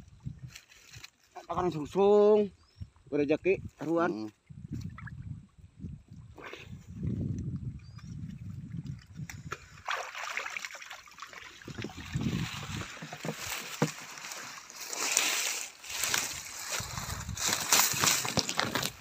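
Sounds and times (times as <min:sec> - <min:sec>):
water sloshing and splashing: 0:06.9 - 0:19.0.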